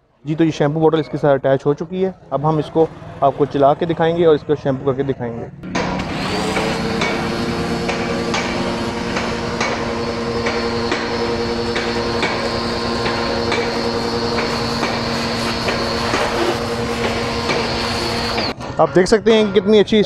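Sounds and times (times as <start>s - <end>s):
pressure washer motor whine: 5.6s - 18.7s
spray hissing: 6.2s - 18.5s.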